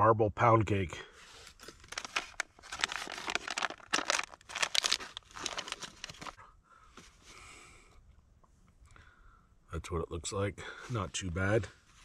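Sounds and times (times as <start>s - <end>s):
food pouch tearing and crinkling: 1.6s - 6.4s.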